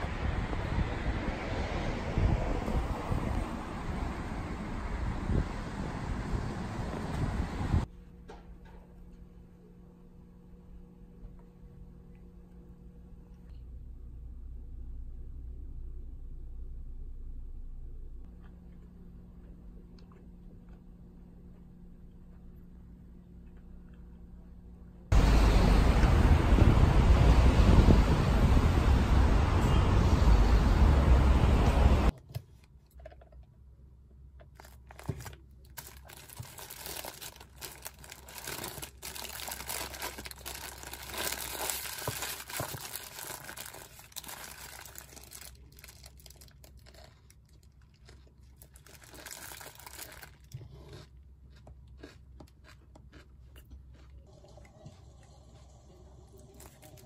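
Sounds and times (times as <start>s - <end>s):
wind buffeting microphone: 0.0s - 7.9s, 25.2s - 32.1s
paper wrapper crinkling: 34.5s - 50.5s.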